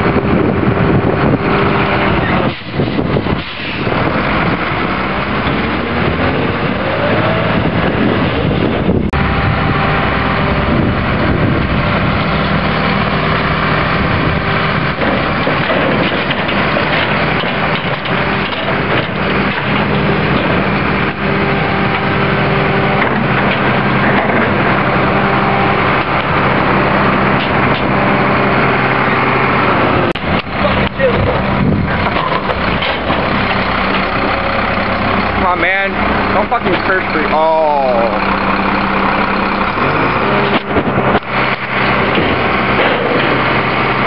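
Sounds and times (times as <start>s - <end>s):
garbage truck diesel engine running: 0.0s - 44.0s
trash and cart knocking: 14.8s - 21.1s, 22.9s - 24.9s, 25.8s - 28.0s, 30.1s - 34.4s, 39.8s - 44.0s.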